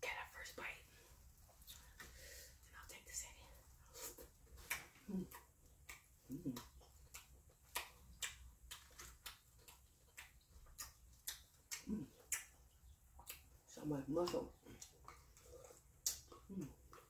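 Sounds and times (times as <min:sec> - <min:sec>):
person chewing with wet smacks: 0:03.6 - 0:17.0.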